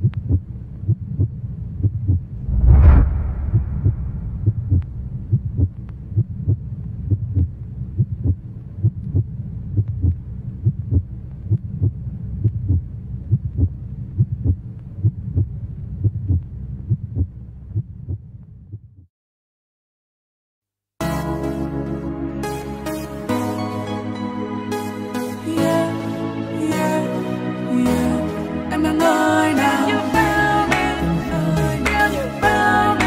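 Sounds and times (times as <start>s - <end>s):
low rumbling drone: 2.3s - 7.0s.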